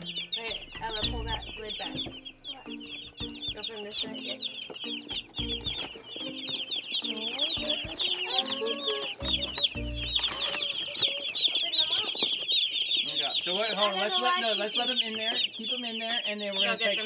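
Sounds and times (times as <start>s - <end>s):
chicks peeping: 0.0s - 17.0s.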